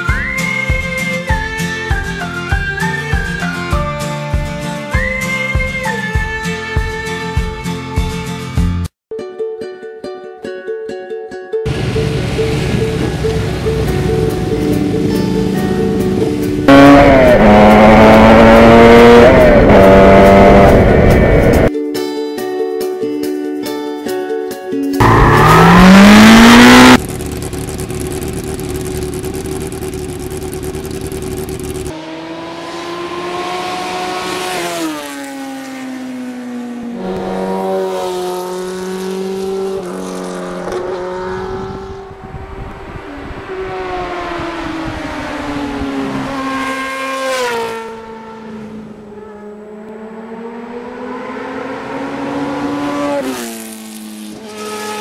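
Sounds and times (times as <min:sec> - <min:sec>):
motorcycle engine revving: 0:11.7 - 0:21.7, 0:25.0 - 0:55.0
loud rising whoosh: 0:11.8 - 0:21.7, 0:25.0 - 0:27.0.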